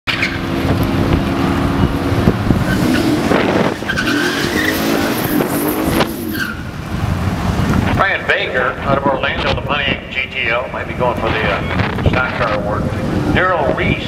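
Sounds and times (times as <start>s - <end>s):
car engine revving hard: 0.3s - 7.7s
tyres squealing: 2.7s - 6.7s.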